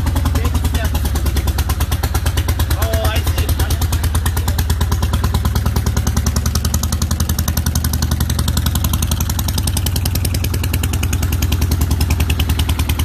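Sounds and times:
motorcycle engine idling: 0.0s - 13.0s.

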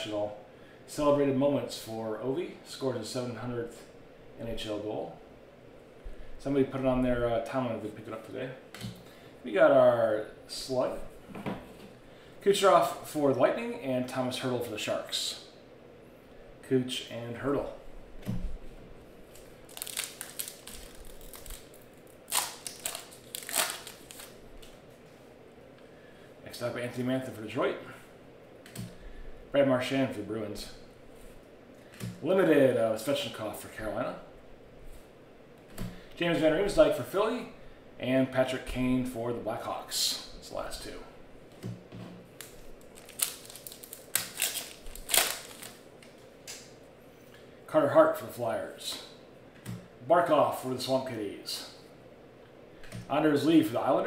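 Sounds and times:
foil wrapper crinkling: 19.3s - 24.4s, 42.4s - 46.6s
foil ripping: 19.7s - 24.4s, 42.4s - 45.8s.

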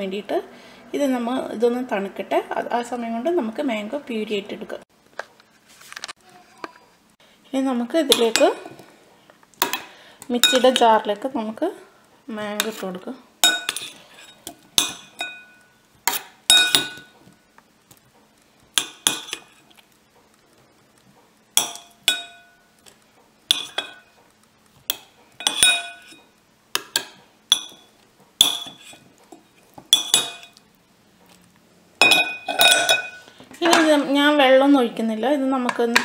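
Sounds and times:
metal utensil clinking on steel jar: 25.4s - 26.2s, 32.0s - 33.8s.

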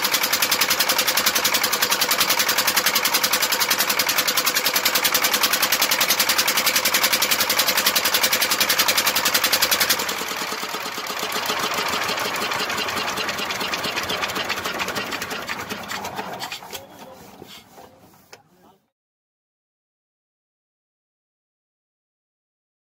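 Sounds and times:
diesel engine running: 0.0s - 17.2s.

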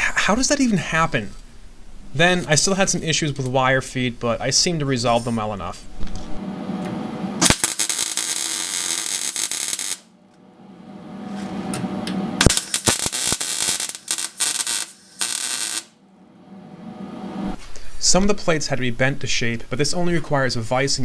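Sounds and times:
welder arc buzzing and crackling: 6.3s - 10.4s, 11.2s - 16.0s.

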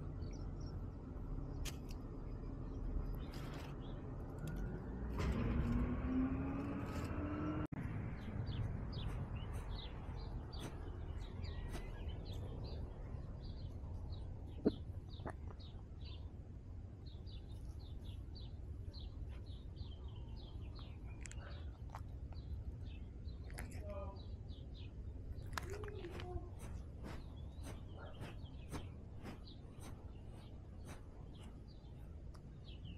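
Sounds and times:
small birds chirping: 0.0s - 32.9s.

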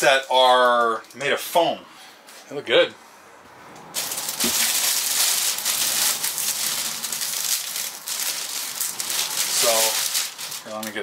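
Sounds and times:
plastic wrapping crinkling: 3.9s - 11.0s.

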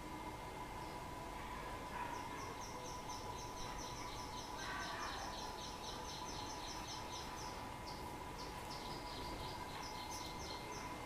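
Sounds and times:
faint steady tone: 0.0s - 11.0s.

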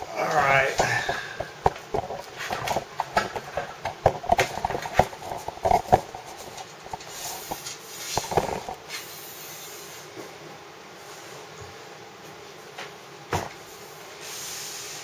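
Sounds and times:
steady low hiss: 0.0s - 15.0s
camera handling knocks and rustling: 1.4s - 6.6s.

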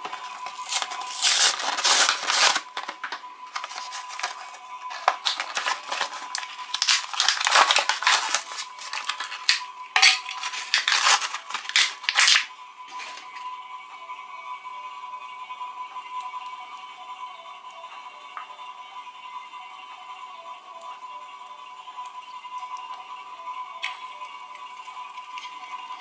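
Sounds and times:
packaging crinkling and tearing: 0.0s - 13.2s
faint background music: 0.0s - 26.0s.

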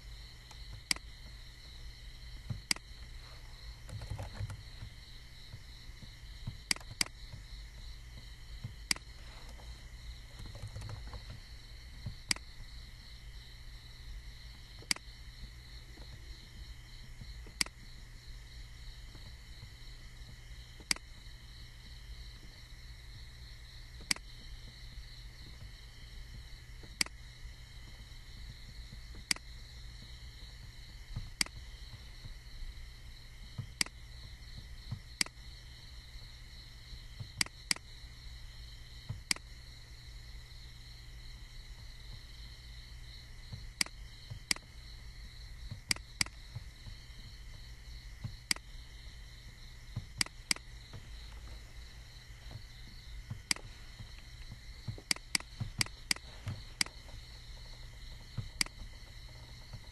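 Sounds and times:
low hum: 0.0s - 59.9s
computer mouse clicking: 2.6s - 4.9s, 6.6s - 7.2s, 8.8s - 9.7s, 10.3s - 11.4s, 12.2s - 12.5s, 14.8s - 15.1s, 20.8s - 21.1s, 24.0s - 24.3s, 27.0s - 27.2s, 29.2s - 29.5s, 39.2s - 39.5s, 43.8s - 44.7s, 45.7s - 46.5s, 48.4s - 48.7s, 50.2s - 51.6s, 53.4s - 57.1s, 58.4s - 59.0s.

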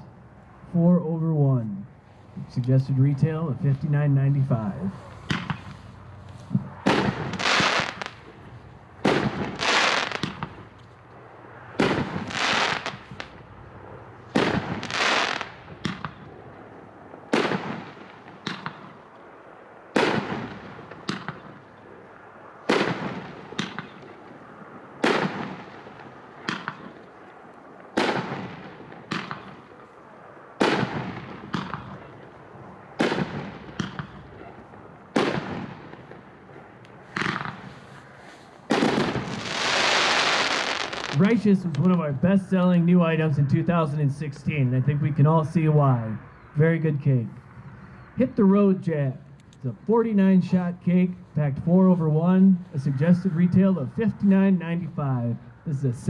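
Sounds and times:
firework bursting bang: 5.2s - 5.8s, 6.5s - 8.3s, 9.0s - 10.7s, 11.8s - 13.4s, 14.3s - 16.2s, 17.3s - 19.0s, 19.9s - 21.6s, 22.7s - 24.2s, 25.0s - 27.0s, 27.9s - 29.7s, 30.6s - 32.1s, 33.0s - 36.3s, 37.1s - 37.7s, 38.7s - 41.4s.

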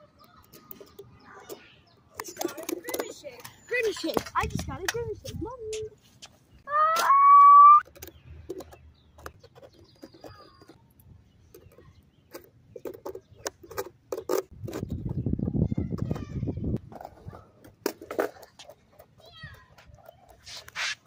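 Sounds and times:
skate tool clicks and knocks: 0.2s - 5.4s, 7.8s - 10.8s, 11.5s - 15.2s.

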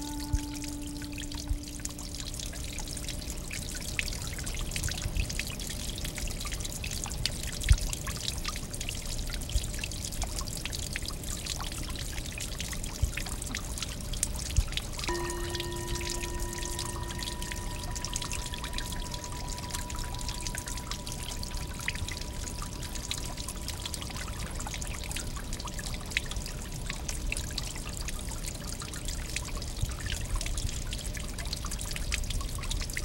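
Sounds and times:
low ringing tone: 0.0s - 4.6s, 15.1s - 25.4s
water dripping and splashing: 0.0s - 33.0s
water trickling over stone: 0.0s - 33.0s.

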